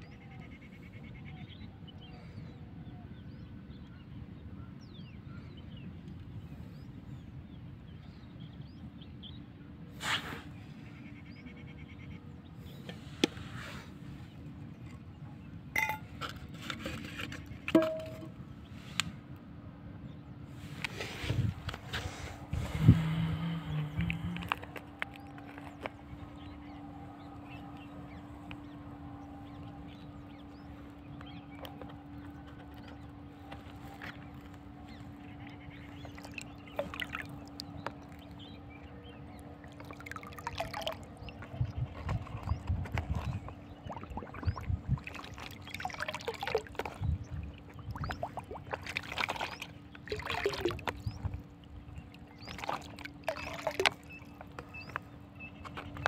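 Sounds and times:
water sloshing in plastic drum: 15.8s - 18.4s, 31.1s - 56.0s
low hum: 19.8s - 56.0s
background rumble: 21.1s - 56.0s.

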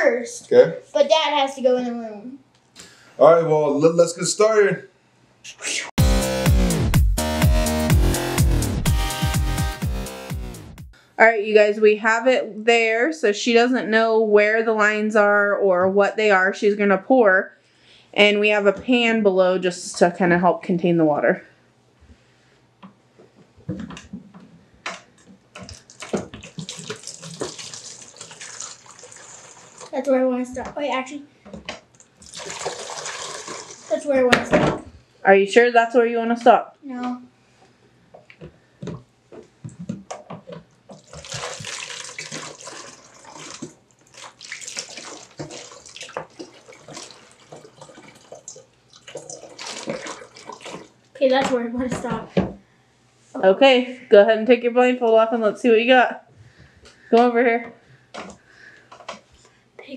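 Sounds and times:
water pouring into bottle: 25.6s - 30.0s, 32.2s - 34.0s, 40.9s - 51.0s.

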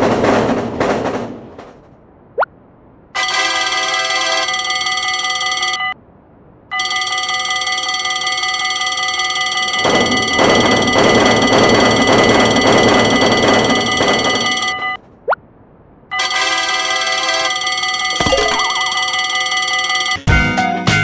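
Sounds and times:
train passing: 0.0s - 5.2s, 6.0s - 15.0s
railroad crossing bells ringing: 3.2s - 6.0s, 6.7s - 15.0s, 16.1s - 20.3s.

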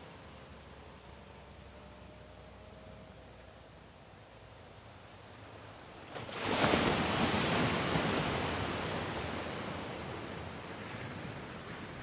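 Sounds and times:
wave breaking on shore: 6.1s - 12.0s.

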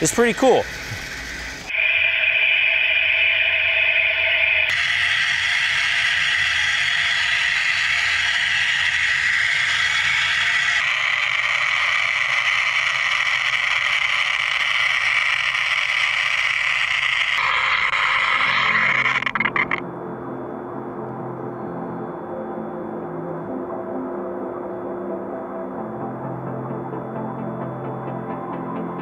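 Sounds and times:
spark machining hiss: 0.0s - 19.8s.

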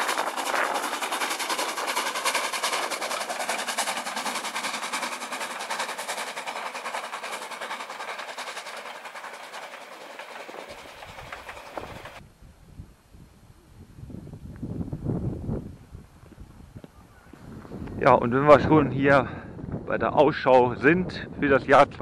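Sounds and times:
steam locomotive chuffing: 0.0s - 12.2s.

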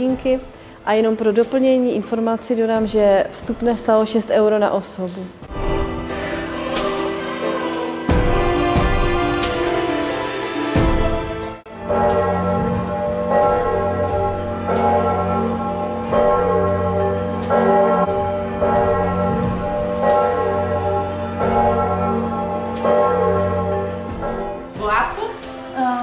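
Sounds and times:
large church bells ringing: 11.7s - 26.0s.

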